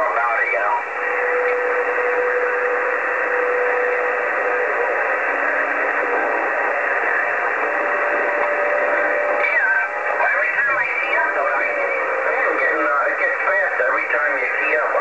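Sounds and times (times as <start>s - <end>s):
radio static hiss: 0.0s - 15.0s
faint steady whistles: 0.8s - 9.4s.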